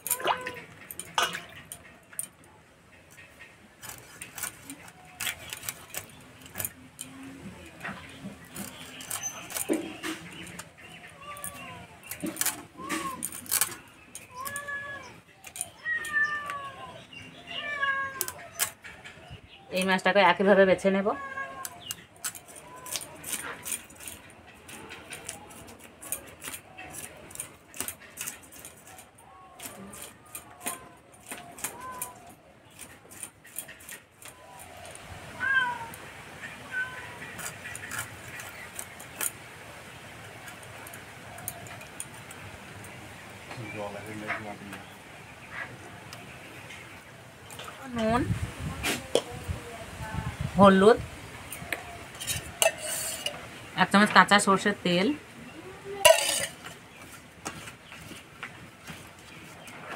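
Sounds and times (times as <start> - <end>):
cat meowing: 0.0 - 0.7, 11.0 - 12.0, 14.2 - 18.6, 21.0 - 21.9, 31.6 - 32.4, 35.2 - 37.4
fish scales scraped on blade: 52.2 - 53.4.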